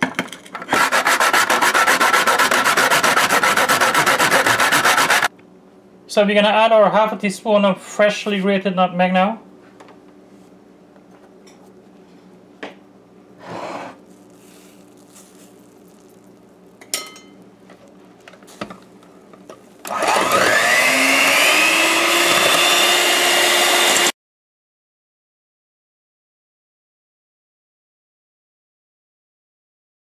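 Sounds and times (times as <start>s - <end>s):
electric hand mixer whining: 1.0s - 5.3s, 19.9s - 24.2s.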